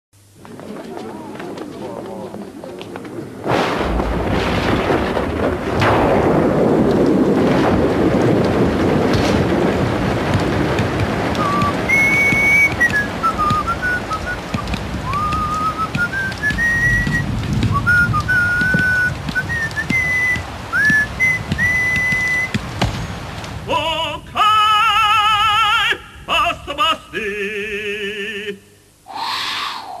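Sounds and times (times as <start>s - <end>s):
wind and rain storm rushing: 0.2s - 30.0s
person singing operatically: 23.6s - 28.8s.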